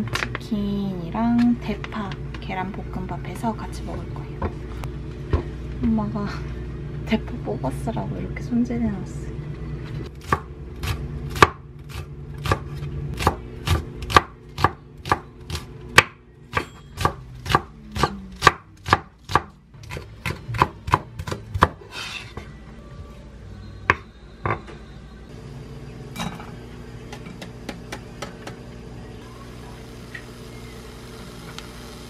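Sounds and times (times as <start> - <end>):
steady low hum: 0.0 - 20.6
knife chopping on wooden board: 10.2 - 22.0.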